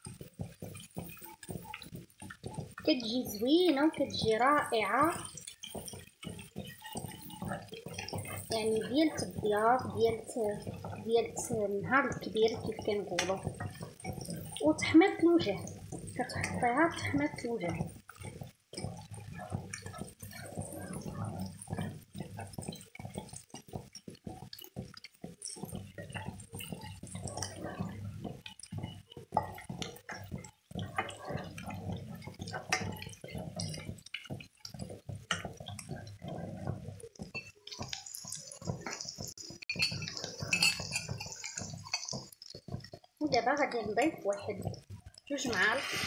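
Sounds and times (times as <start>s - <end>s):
food bubbling in oil: 0.0s - 46.0s
sizzling hiss: 0.0s - 46.0s
wooden spoon scraping a pan: 0.0s - 46.0s.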